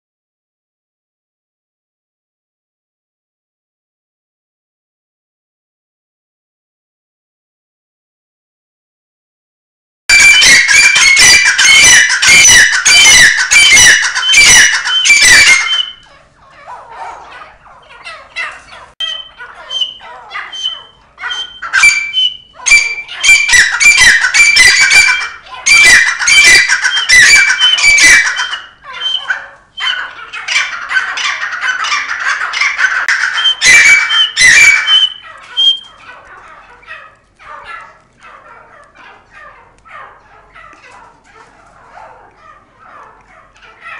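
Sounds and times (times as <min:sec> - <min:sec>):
partridges calling loudly: 0:10.1 - 0:43.9.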